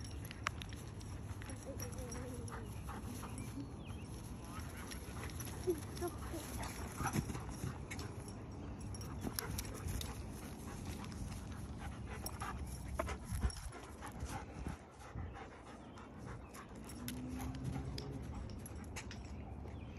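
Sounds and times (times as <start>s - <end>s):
paws patting on ground: 0.0s - 8.4s
dogs panting: 0.0s - 19.9s.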